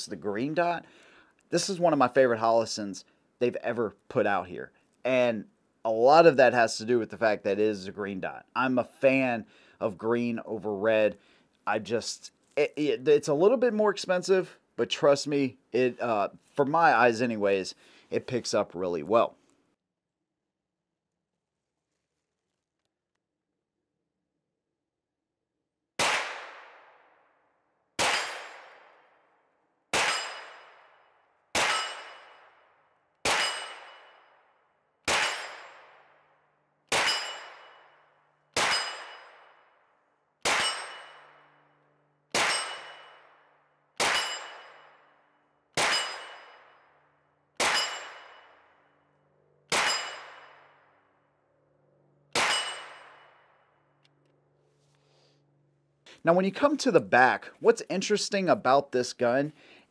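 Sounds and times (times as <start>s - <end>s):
sharp metallic clang: 30.0s - 30.8s, 31.6s - 32.6s, 33.2s - 34.4s, 35.1s - 35.8s, 36.9s - 38.0s, 38.6s - 39.7s, 40.4s - 41.8s, 42.4s - 43.3s, 44.0s - 45.1s, 45.8s - 46.9s, 47.6s - 48.8s, 49.7s - 50.8s, 52.3s - 53.6s.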